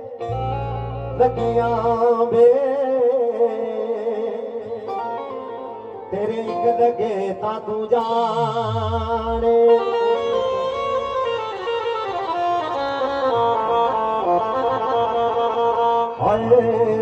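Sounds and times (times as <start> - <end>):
steady held notes: 4.0 - 17.0
deep tone sliding downward: 8.2 - 10.2
wavering melody: 8.2 - 17.0.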